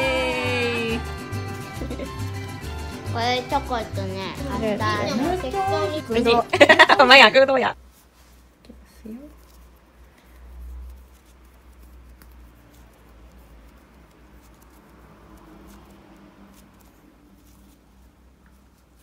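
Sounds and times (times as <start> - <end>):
hands shaping dough: 7.7 - 19.0.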